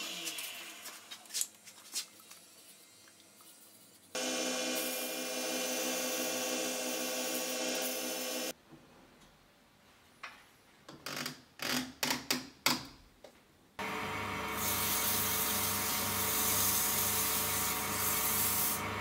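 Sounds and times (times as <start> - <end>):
sanding hiss on wood lathe: 14.6 - 18.9.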